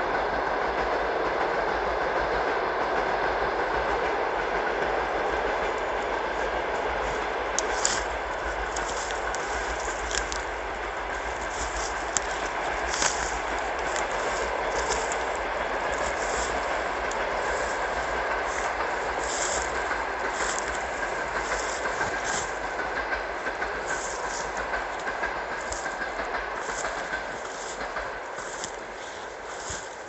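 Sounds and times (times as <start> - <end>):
crisp rustling crunches: 7.7 - 17.8.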